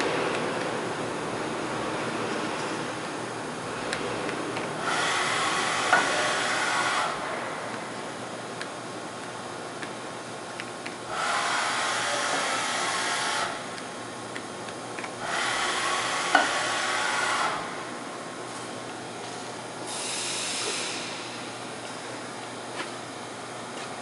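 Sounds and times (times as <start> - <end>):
machine axes whining: 4.6 - 7.3, 11.1 - 13.8, 15.0 - 17.7.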